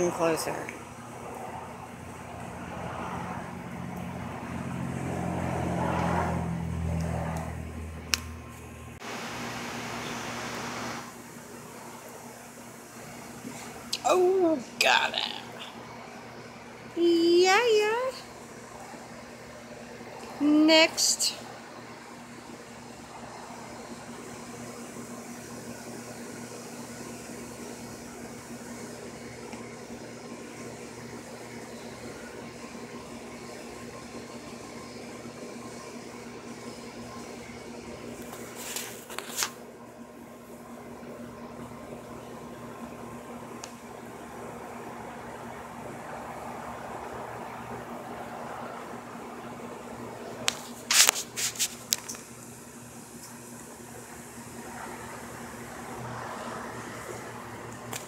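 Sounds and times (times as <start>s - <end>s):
steady machine hum: 0.0s - 58.0s
motor vehicle passing: 1.1s - 8.6s
constant hiss: 9.0s - 32.3s, 42.0s - 58.0s.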